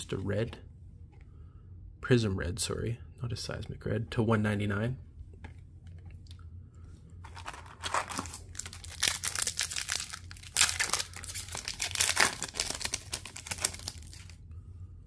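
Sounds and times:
wrapper tearing and crinkling: 7.2 - 14.4.

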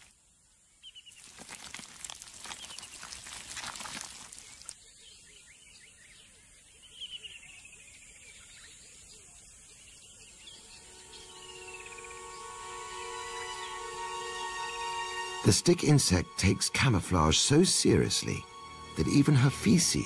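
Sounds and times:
crackling rustle: 1.1 - 4.8.

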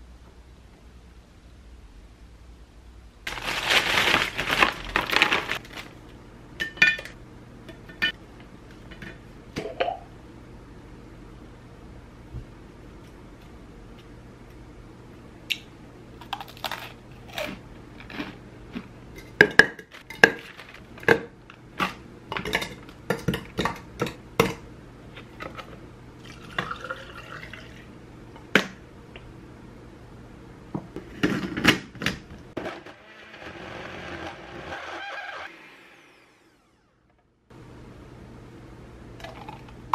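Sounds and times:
liquid pouring: 26.2 - 27.9
blender whirring: 32.6 - 37.0.

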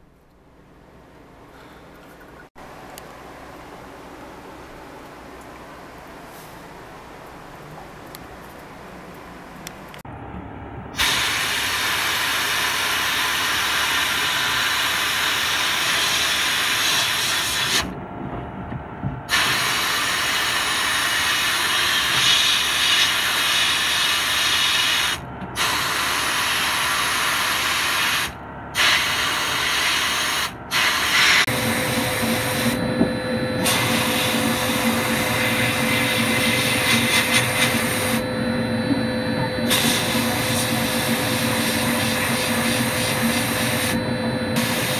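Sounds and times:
motor humming: 31.5 - 44.9.

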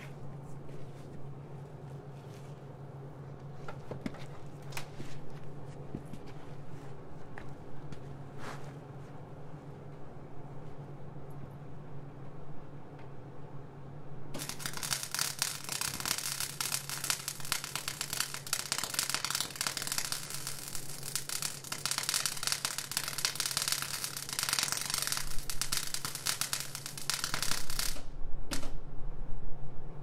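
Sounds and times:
low steady hum: 0.0 - 30.0
welding arc crackling: 14.4 - 28.1.

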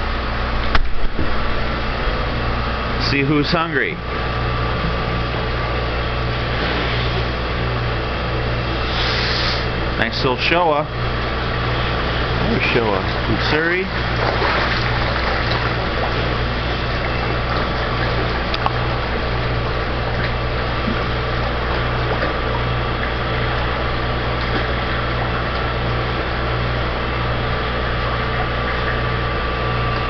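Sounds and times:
low pump hum: 0.0 - 30.0
rushing water: 13.9 - 19.2.

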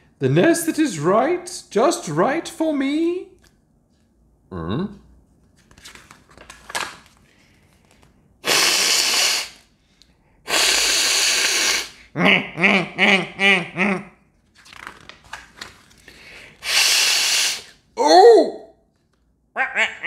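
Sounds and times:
book page turning: 5.4 - 8.2, 14.4 - 16.1
person hissing: 8.4 - 9.7, 10.5 - 12.1, 16.6 - 18.6
short voiced sounds: 16.7 - 18.8, 19.6 - 20.0.

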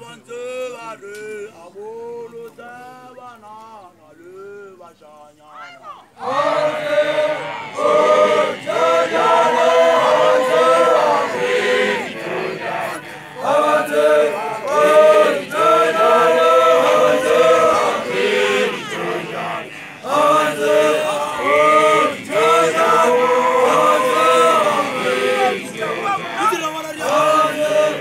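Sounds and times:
group of voices chanting: 6.0 - 28.0.

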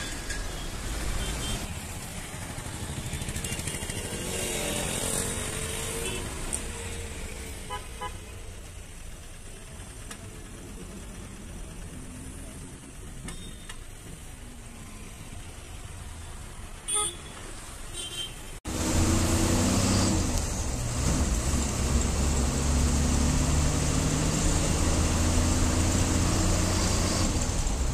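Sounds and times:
bus engine drone: 8.5 - 13.4, 18.7 - 27.9
vehicle horn toot: 16.9 - 18.5.

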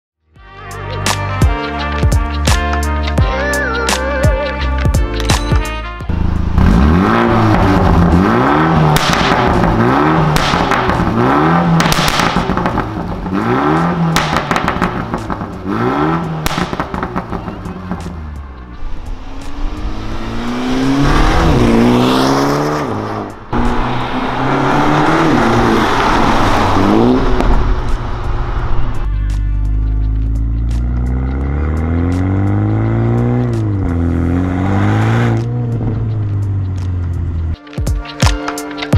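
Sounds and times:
car accelerating hard: 6.1 - 18.1, 18.9 - 29.0, 30.8 - 37.4
car engine revving: 6.1 - 37.6
exhaust pops: 8.7 - 15.6, 16.4 - 18.1.

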